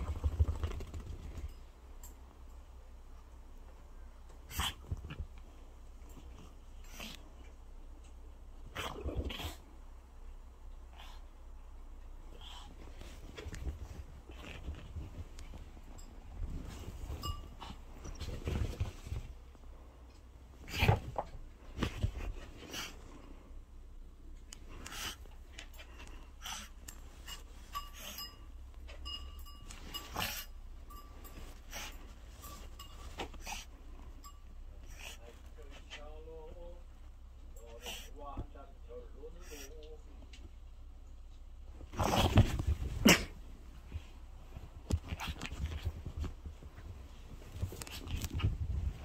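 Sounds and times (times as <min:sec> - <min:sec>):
dog panting and snuffling: 0:20.6 - 0:23.4, 0:24.4 - 0:28.4, 0:29.8 - 0:30.5, 0:31.3 - 0:33.9, 0:34.8 - 0:36.2, 0:37.6 - 0:38.2
clicks and rustles of handling: 0:43.9 - 0:49.0.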